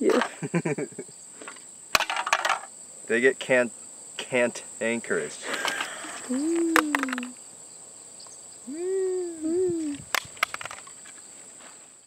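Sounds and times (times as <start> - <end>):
high insect whine: 0.0 - 12.0
crushed cans clicking: 1.4 - 2.7, 5.4 - 7.4, 10.1 - 11.2
low hoot-like calls: 6.3 - 7.4, 8.7 - 10.0.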